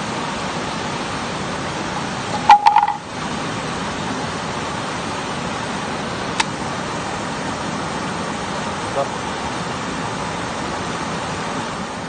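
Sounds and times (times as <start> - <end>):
waterfall and river rushing: 0.0 - 12.0.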